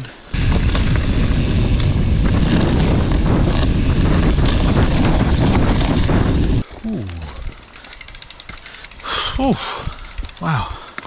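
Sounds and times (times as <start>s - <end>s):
mountain bike rumbling and rattling: 0.0s - 11.0s
wind buffeting microphone: 0.3s - 6.6s.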